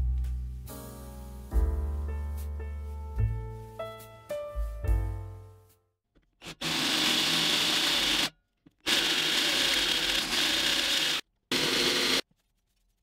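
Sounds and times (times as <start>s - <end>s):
electric drill boring into steel: 6.4s - 12.2s.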